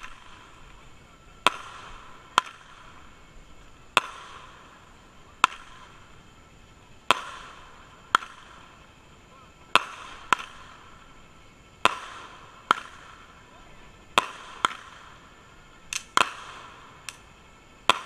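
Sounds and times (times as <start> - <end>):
firework pops: 1.4 - 3.0, 3.9 - 4.8, 5.4 - 6.0, 7.0 - 8.7, 9.7 - 10.8, 11.8 - 13.2, 14.2 - 15.2, 15.9 - 18.0.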